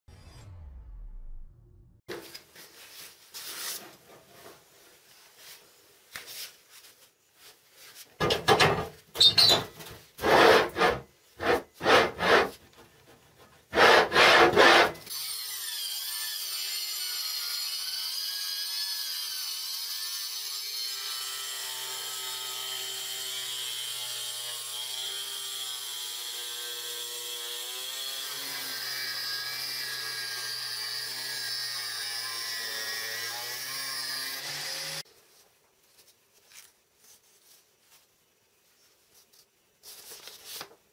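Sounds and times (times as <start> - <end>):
angle grinder cutting: 10.2 - 12.5, 13.8 - 35.0.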